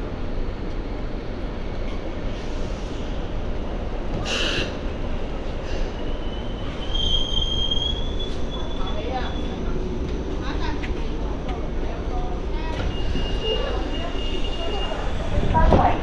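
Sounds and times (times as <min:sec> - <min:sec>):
tram rumbling in: 0:00.0 - 0:16.0
high wheel squeal: 0:05.9 - 0:09.6, 0:12.8 - 0:15.4.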